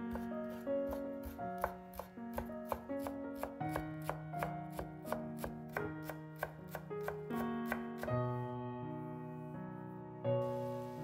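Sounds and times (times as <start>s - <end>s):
background music with held notes: 0.0s - 11.0s
knife chopping on wooden board: 0.1s - 8.2s.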